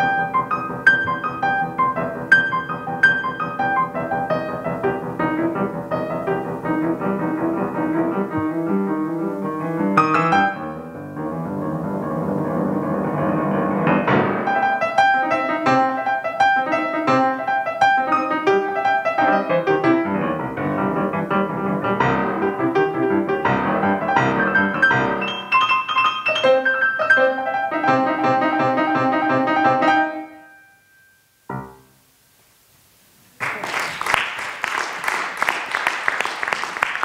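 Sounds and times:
grand piano rapid notes: 0.0 - 32.0
audience applause: 33.4 - 37.0.

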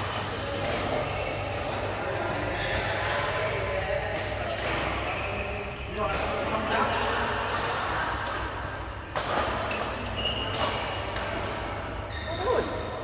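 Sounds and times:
racket hitting shuttlecock: 2.7 - 12.0
shoes squeaking on court: 5.0 - 6.0, 9.7 - 11.2, 12.0 - 13.0.

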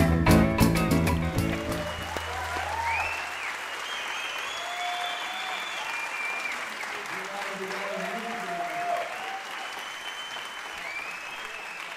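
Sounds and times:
strummed guitar chords: 0.0 - 2.1
audience whistling: 1.0 - 6.9, 8.5 - 11.9
audience applauding: 1.0 - 11.9.

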